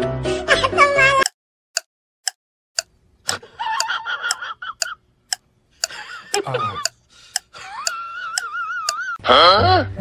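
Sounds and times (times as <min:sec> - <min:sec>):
wall clock ticking: 0:01.2 - 0:09.1.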